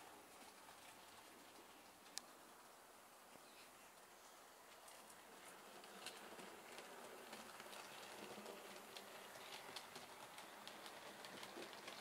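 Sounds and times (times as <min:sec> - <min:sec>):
model train wheels clicking: 0:04.6 - 0:12.0.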